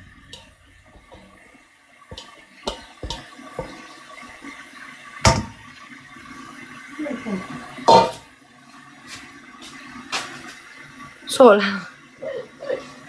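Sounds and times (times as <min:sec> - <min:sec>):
kitchenware clattering: 0:02.1 - 0:03.8, 0:07.9 - 0:08.2.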